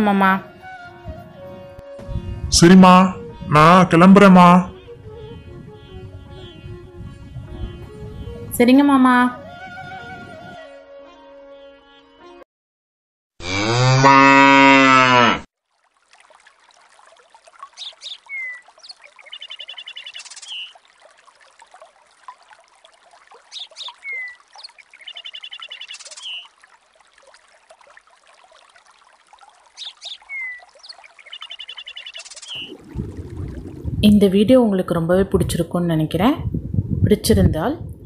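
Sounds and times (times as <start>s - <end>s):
cow mooing: 13.4s - 15.5s
bird chirps and whistles: 17.8s - 20.7s, 23.5s - 26.5s, 29.8s - 32.7s.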